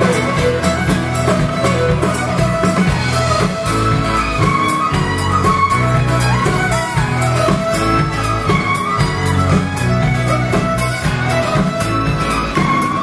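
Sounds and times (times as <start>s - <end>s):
folk band playing: 0.0s - 13.0s.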